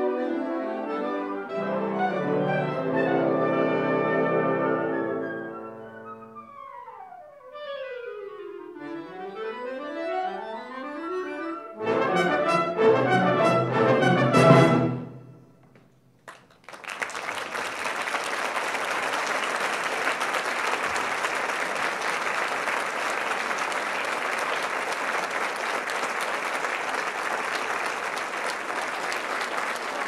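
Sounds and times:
audience applauding: 16.2 - 30.0.

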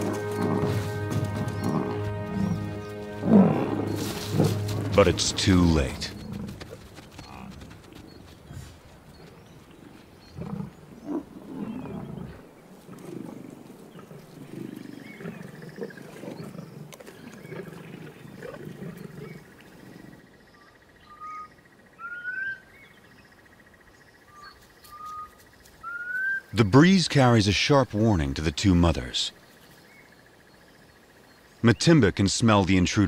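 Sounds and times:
lions growling: 0.0 - 20.2.

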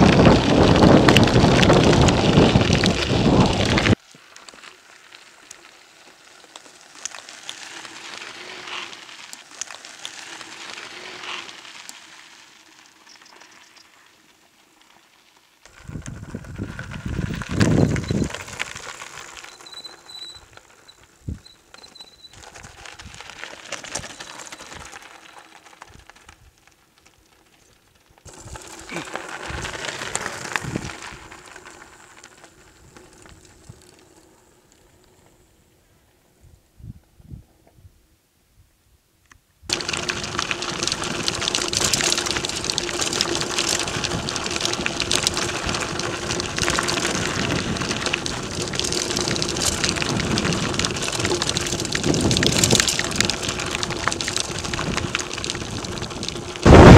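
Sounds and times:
wind buffeting microphone: 0.0 - 4.0, 15.8 - 18.6, 30.4 - 31.4, 43.8 - 56.9
bike tyres crunching over gravel: 0.0 - 36.0, 39.7 - 56.9.

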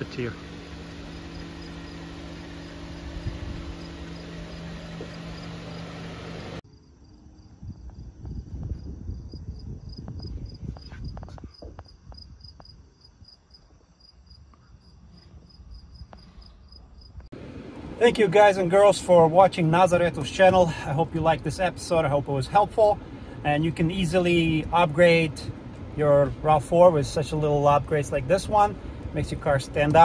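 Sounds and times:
steady low hum: 0.0 - 30.0
crickets chirping: 0.6 - 17.3.

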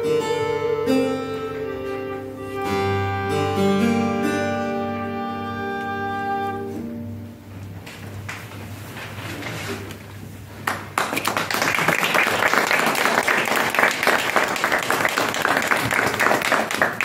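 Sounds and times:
audience applause: 10.6 - 17.0.

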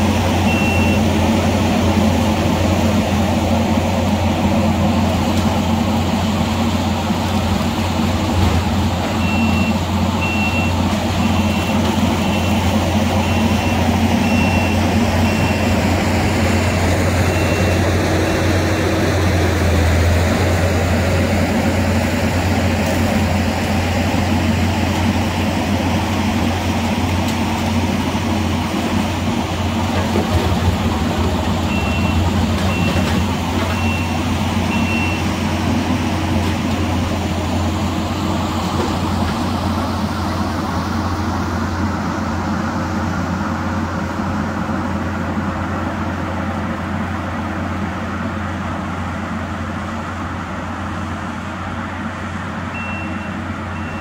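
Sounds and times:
skid steer engine under load: 0.0 - 54.0
reversing alarm beeps: 0.4 - 1.1, 9.2 - 15.8, 17.3 - 17.9, 31.7 - 33.1, 33.7 - 35.4, 52.7 - 54.0.

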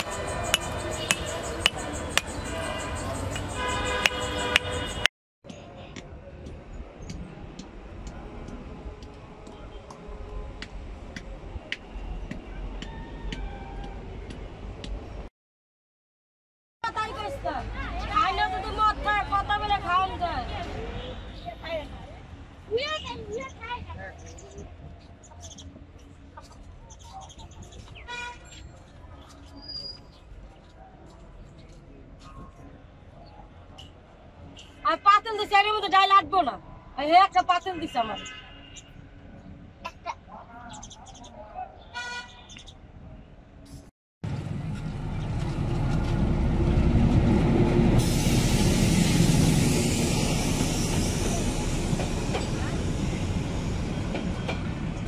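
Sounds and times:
heavy vehicle rumbling past: 44.2 - 55.0
hiss: 48.0 - 52.7.

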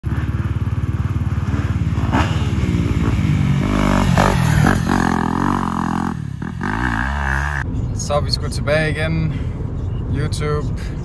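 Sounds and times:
motorbike engine revving: 0.0 - 7.7.

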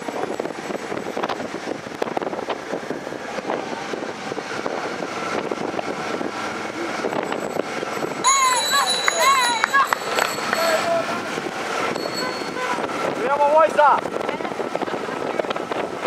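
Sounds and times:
bicycle tyre and road noise: 0.0 - 16.0
bike rattles and clicks: 7.0 - 16.0.

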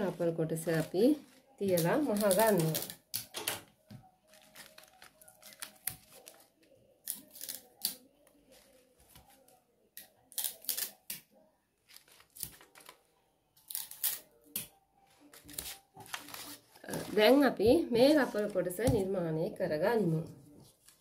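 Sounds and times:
paper rustling and crinkling: 0.0 - 3.0, 4.2 - 9.6, 11.8 - 13.1, 15.0 - 17.5.

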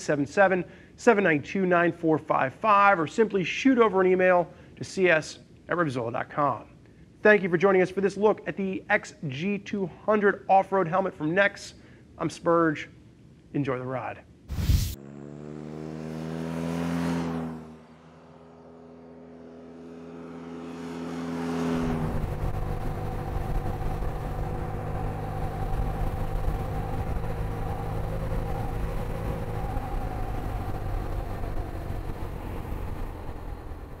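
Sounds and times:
road and wind rumble: 14.5 - 34.0
motorcycle engine: 14.7 - 34.0.

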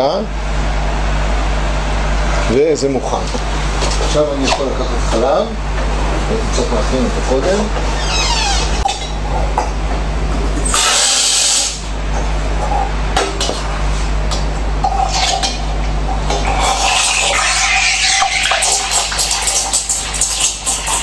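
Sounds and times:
steam wand hissing: 10.7 - 11.8
steam hissing into milk: 10.7 - 11.9, 16.5 - 21.0.

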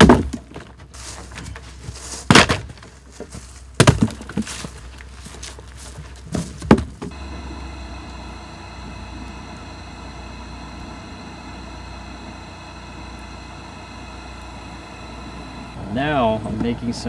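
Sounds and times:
logs thudding onto a pile: 0.0 - 7.2
mechanical hum with whining tones: 0.0 - 17.0.

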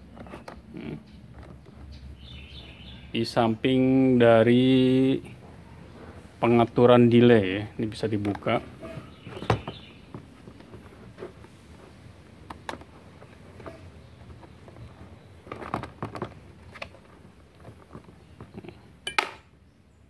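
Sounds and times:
plastic clicks and knocks: 8.1 - 11.5, 12.3 - 19.4.

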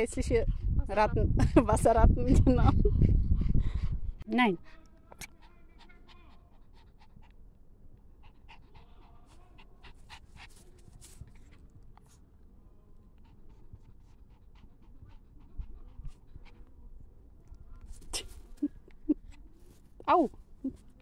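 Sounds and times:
dog panting: 3.0 - 12.3, 13.0 - 20.0
faint clicks and rustles: 9.9 - 12.3.

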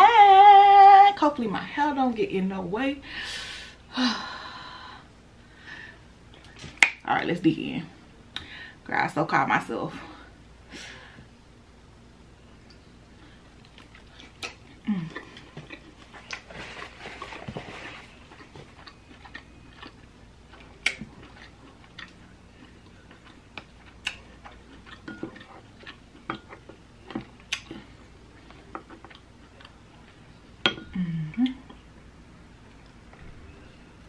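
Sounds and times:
person chewing: 13.4 - 30.3.

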